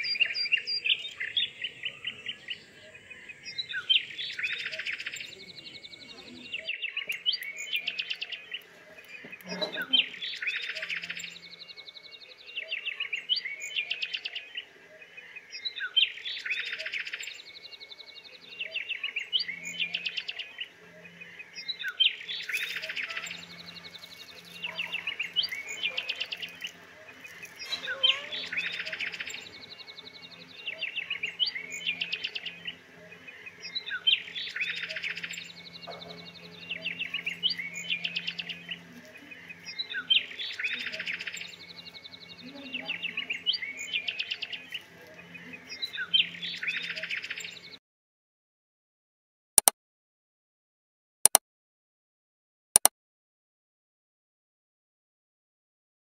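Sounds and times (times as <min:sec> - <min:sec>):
bird trilled chirping: 0:21.6 - 0:47.7.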